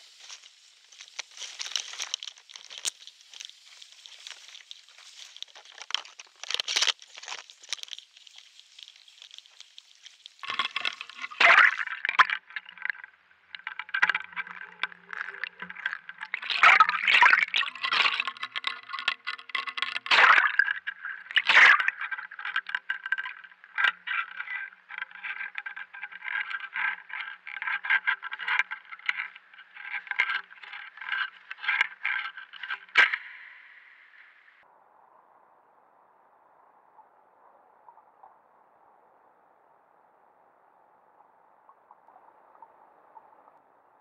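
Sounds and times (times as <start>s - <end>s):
scrapes: 0.0s - 33.6s
underwater crackling and clicking: 0.0s - 33.9s.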